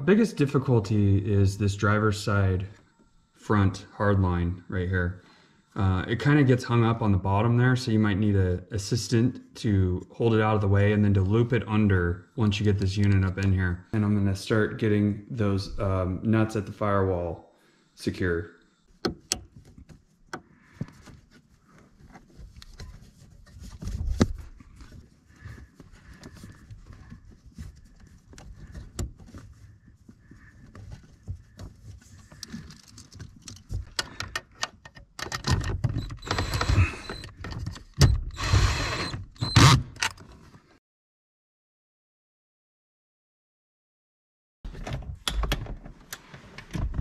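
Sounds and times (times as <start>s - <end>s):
metallic clicks and knocks: 32.3s - 36.3s.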